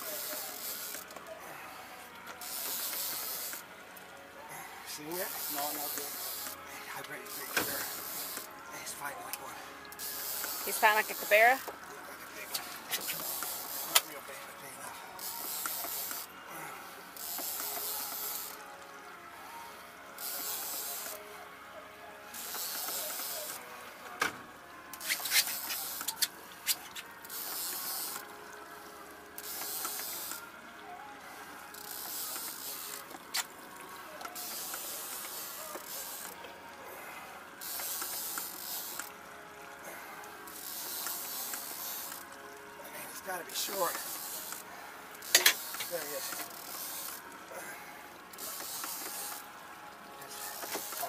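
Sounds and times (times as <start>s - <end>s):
fishing reel whirring: 0.0s - 1.6s, 2.4s - 3.7s, 5.0s - 9.1s, 9.9s - 11.8s, 12.4s - 14.2s, 15.0s - 18.8s, 20.2s - 21.2s, 22.3s - 23.7s, 24.9s - 30.5s, 31.6s - 33.6s, 34.2s - 39.2s, 40.2s - 42.4s, 43.2s - 49.5s, 50.3s - 51.0s.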